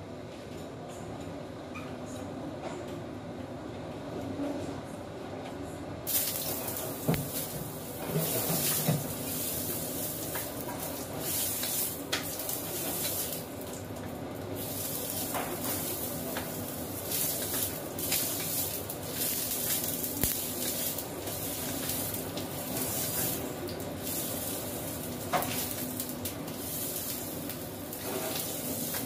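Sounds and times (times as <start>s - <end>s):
vegetables sizzling in frying pan: 6.1s - 29.0s
wooden spatula scraping pan: 7.2s - 11.8s, 27.9s - 29.0s.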